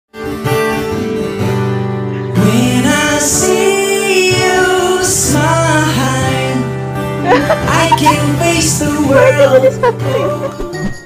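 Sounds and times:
acoustic guitar: 0.1 - 11.0
man singing pop ballad: 2.4 - 10.7.

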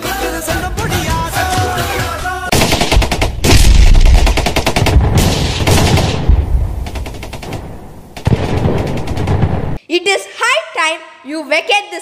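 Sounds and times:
machine-gun fire sound effect: 2.5 - 9.8
heavy low booms: 3.4 - 6.9.

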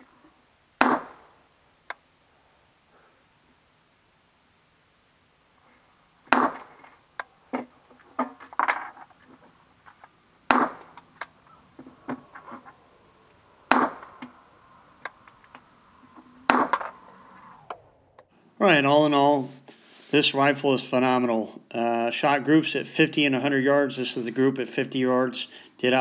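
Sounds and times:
faint cracks and clicks: 6.3 - 18.3.

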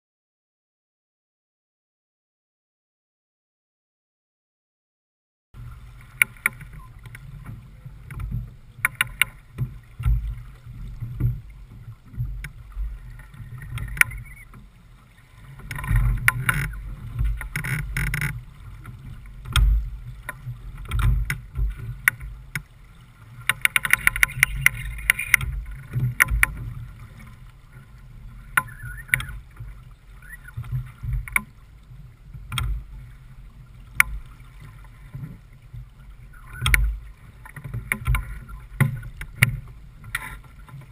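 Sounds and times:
rumble of wind and water: 5.6 - 40.9
short knocks and clicks: 23.4 - 26.6.

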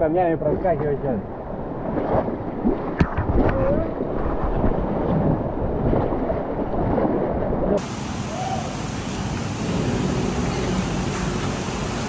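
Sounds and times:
whitewater rushing: 7.8 - 12.0.

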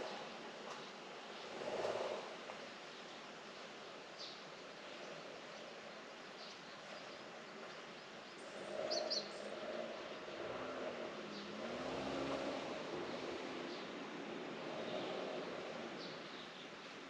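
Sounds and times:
outdoor background hiss: 0.0 - 17.0
vehicle engine passing: 9.5 - 15.9.

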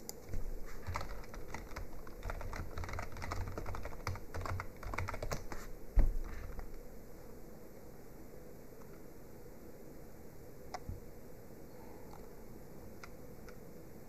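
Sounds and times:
computer keyboard typing: 0.1 - 5.7.

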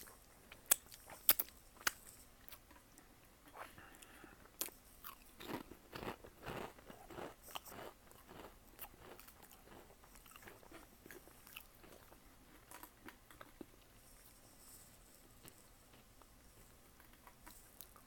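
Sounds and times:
cat chewing crisp: 3.6 - 18.0.

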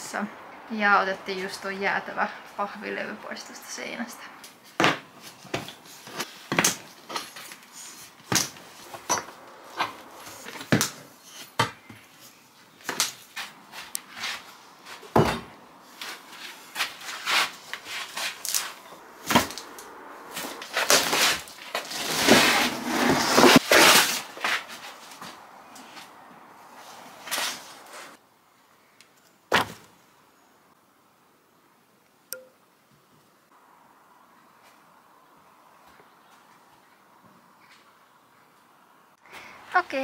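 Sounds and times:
wall covering tearing and scraping: 20.3 - 25.4.

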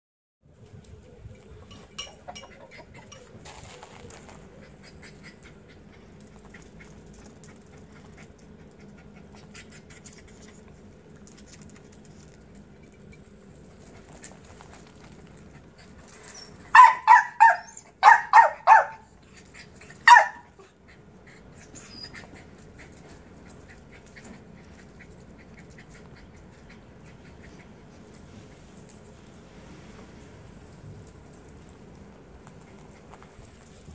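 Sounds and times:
small dog barking: 16.7 - 19.1, 20.0 - 20.6.

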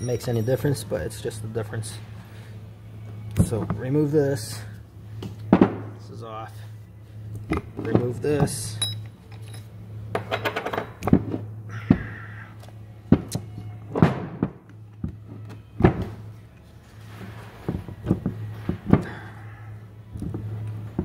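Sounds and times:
steady low hum: 0.0 - 21.0
metal parts knocking and clunking: 7.5 - 12.0.

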